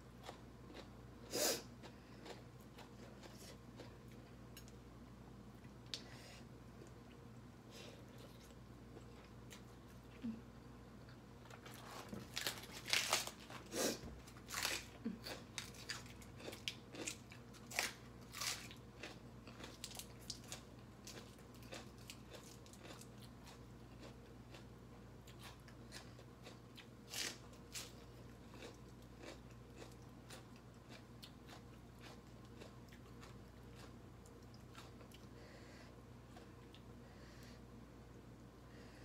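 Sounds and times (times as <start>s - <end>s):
lettuce leaf crunching: 12.1s - 13.6s, 14.4s - 20.6s.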